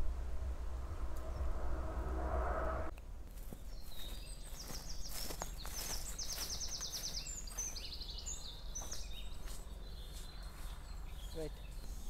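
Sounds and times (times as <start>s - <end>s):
low outdoor rumble: 0.0s - 6.1s
bird singing: 3.4s - 12.0s.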